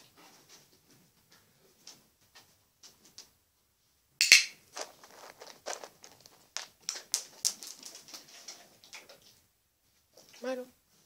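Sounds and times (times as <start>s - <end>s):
dog claws clicking on floor: 4.2s - 9.2s.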